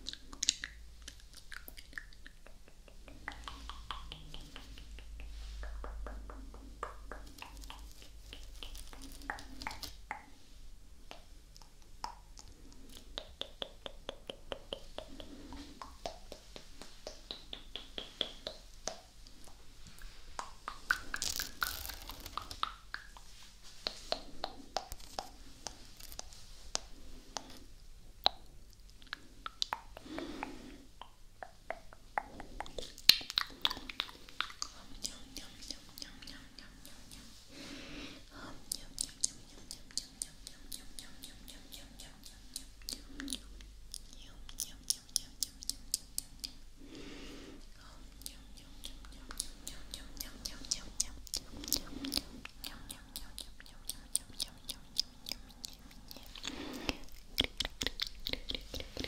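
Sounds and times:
lip smacks and pops: 0:00.0 - 0:10.3, 0:20.3 - 0:27.6, 0:28.2 - 0:36.2, 0:48.2 - 0:59.0
wet tongue clicks: 0:00.0 - 0:10.3, 0:11.1 - 0:19.6, 0:20.4 - 0:27.6, 0:28.2 - 0:37.4, 0:38.7 - 0:46.6, 0:48.2 - 0:59.0.

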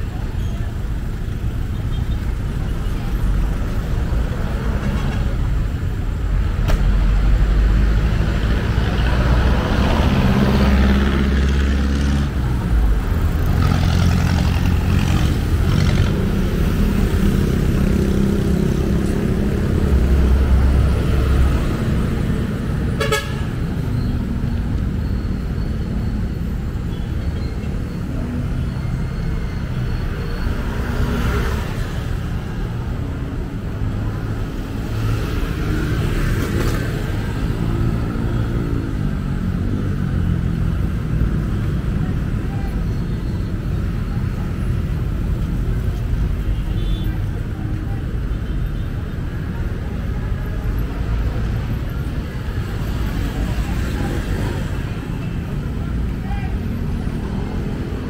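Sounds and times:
traffic rumbling: 0:00.0 - 0:58.0
car horns tooting: 0:22.9 - 0:23.6.

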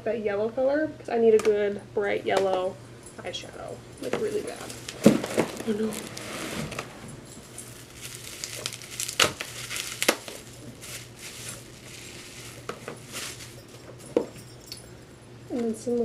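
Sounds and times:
bubble wrap crinkling: 0:04.0 - 0:14.3
packaging clicks: 0:07.7 - 0:13.6.

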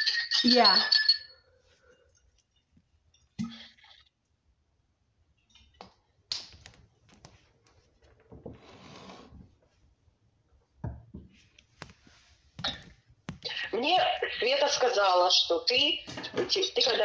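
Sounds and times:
faint clicks and taps: 0:05.4 - 0:08.5, 0:10.8 - 0:13.5
soft noise: 0:06.6 - 0:13.5.

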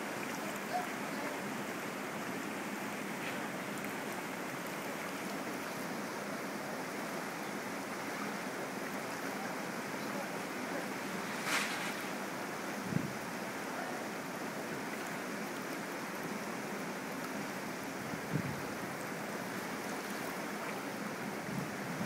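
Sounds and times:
river rapids rushing: 0:00.0 - 0:22.0
short loud hiss: 0:11.2 - 0:12.2.

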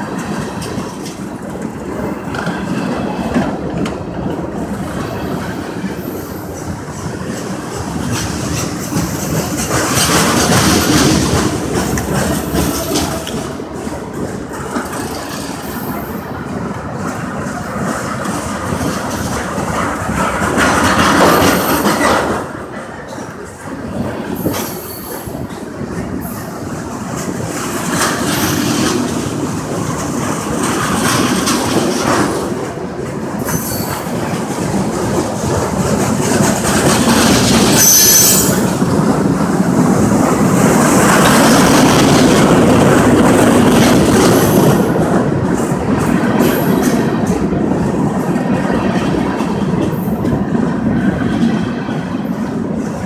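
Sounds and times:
train wheels rumbling on rail: 0:00.0 - 0:53.0
high wheel squeal: 0:37.7 - 0:38.7.

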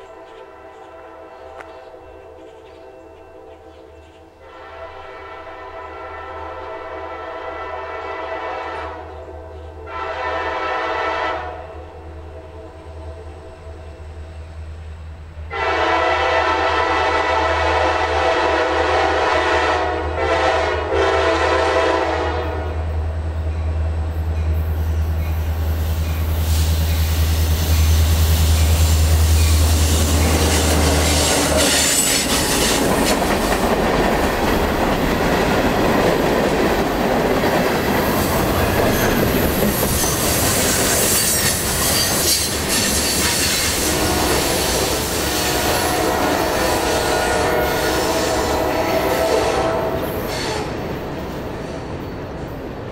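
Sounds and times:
train horn: 0:00.0 - 0:02.4, 0:04.4 - 0:14.1, 0:15.4 - 0:23.2, 0:28.6 - 0:33.2, 0:38.6 - 0:51.1
wheels clacking over rail joints: 0:27.7 - 0:43.8.

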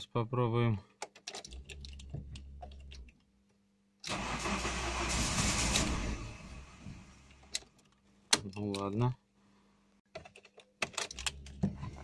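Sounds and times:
car engine cranking: 0:04.1 - 0:07.6.

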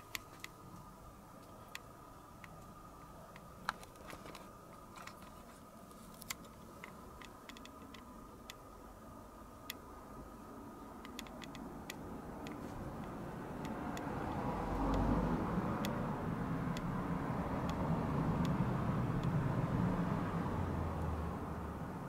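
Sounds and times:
sharp little clicks: 0:06.2 - 0:08.7, 0:11.0 - 0:15.2.

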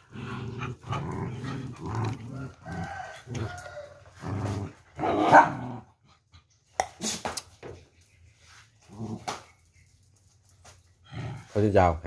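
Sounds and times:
dogs barking: 0:05.2 - 0:05.7.

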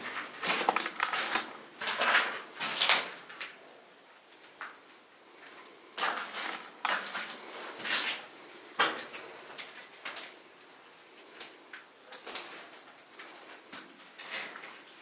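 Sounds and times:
footsteps crunching on rubble: 0:00.0 - 0:03.6, 0:05.4 - 0:10.0.

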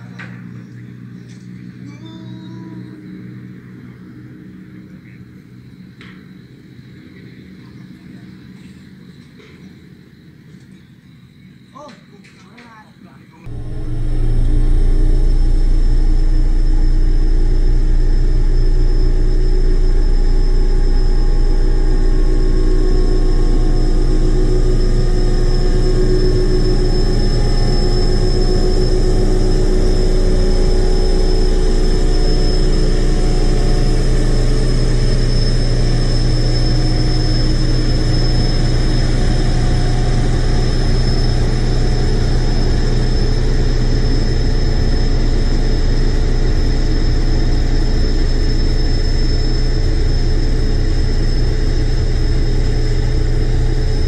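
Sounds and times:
high whine: 0:00.0 - 0:54.0
heavy crane engine rumbling: 0:13.4 - 0:54.0.

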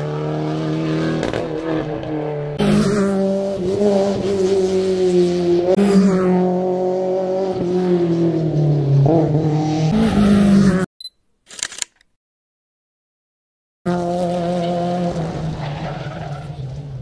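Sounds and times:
rally car engine revving: 0:00.0 - 0:10.9, 0:13.9 - 0:17.0
crackling click: 0:11.5 - 0:12.2.

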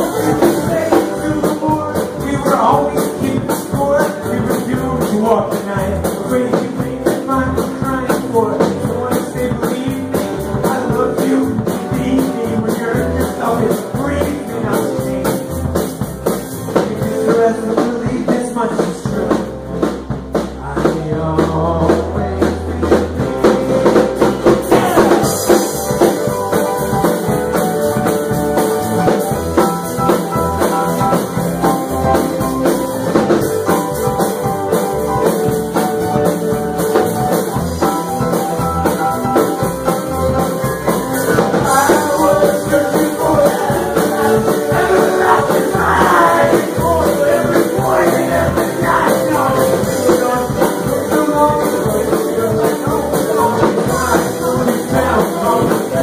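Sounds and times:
acoustic and electric guitars: 0:00.0 - 0:56.0
drum kit: 0:00.0 - 0:56.0
keyboard playing: 0:00.0 - 0:56.0
voices singing: 0:24.5 - 0:26.3, 0:40.8 - 0:56.0.

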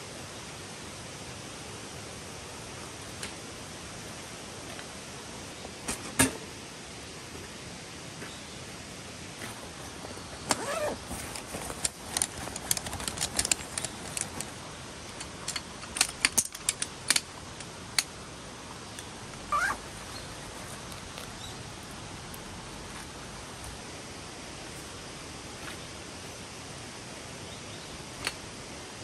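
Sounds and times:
small stream rushing: 0:00.0 - 0:16.0
light clicks and clatter: 0:09.4 - 0:18.1
short squeaks: 0:19.5 - 0:19.8.

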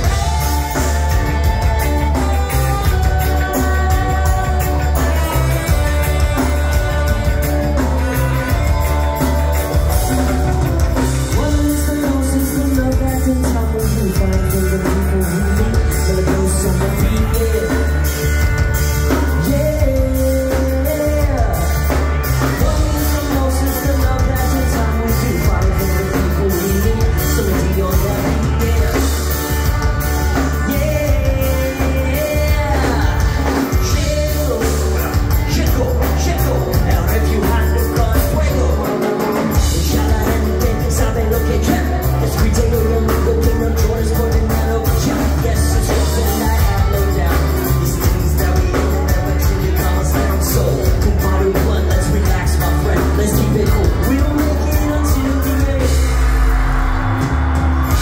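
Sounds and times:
live rock band playing: 0:00.0 - 0:58.0
person singing: 0:00.0 - 0:58.0.

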